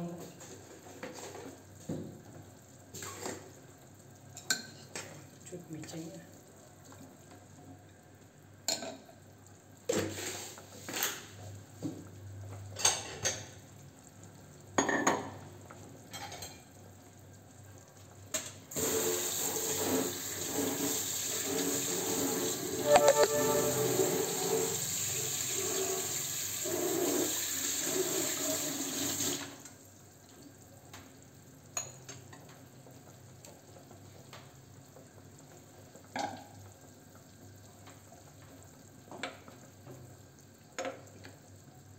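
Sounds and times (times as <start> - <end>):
kitchen tap running water: 18.7 - 29.7.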